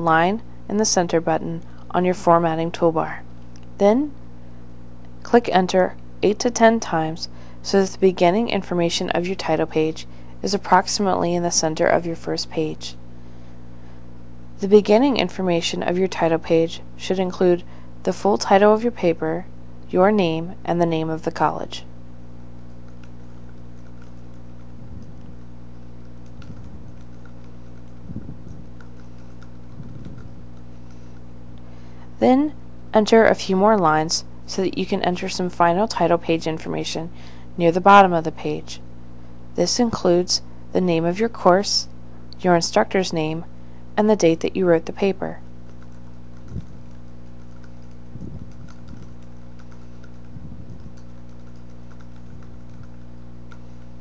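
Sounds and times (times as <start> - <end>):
electrical hum: 0.0 - 54.0
typing on computer keyboard: 26.0 - 28.0, 45.6 - 53.6
soft low thumps: 28.0 - 28.8, 29.6 - 30.6, 48.1 - 49.1, 50.3 - 51.0.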